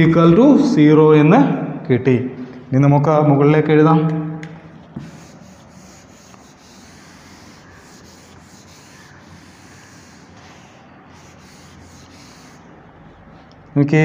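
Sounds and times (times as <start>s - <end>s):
duster scrubbing chalkboard: 4.8s - 13.7s.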